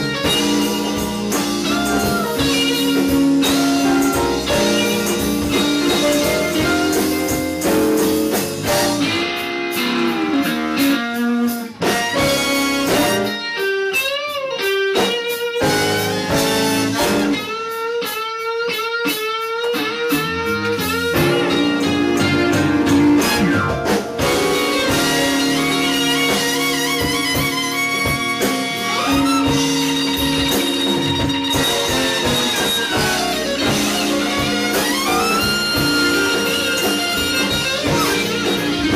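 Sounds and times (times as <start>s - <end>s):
electric guitar with bent notes: 0.0s - 38.9s
live blues band: 0.0s - 38.9s.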